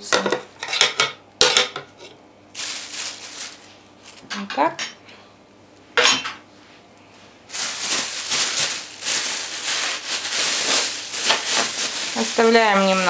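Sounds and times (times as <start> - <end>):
plastic bag crinkling: 2.5 - 4.3, 7.5 - 13.0.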